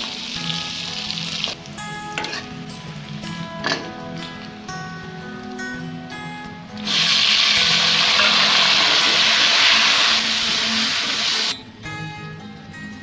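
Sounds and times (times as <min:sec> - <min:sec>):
vegetables sizzling in hot oil: 0:00.0 - 0:01.6, 0:06.8 - 0:11.6
faint background music: 0:00.0 - 0:13.0.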